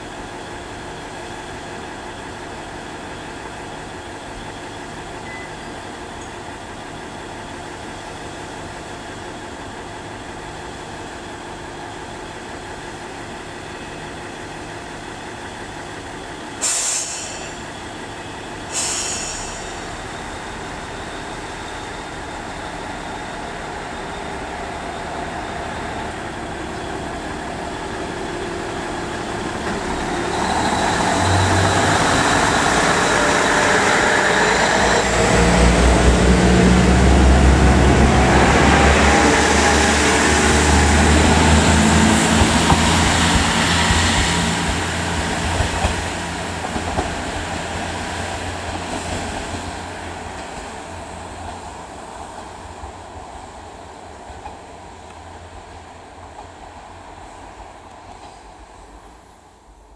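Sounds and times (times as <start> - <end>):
diesel railcar engine: 0.0 - 59.9
air release hisses: 16.6 - 17.7, 18.7 - 20.0.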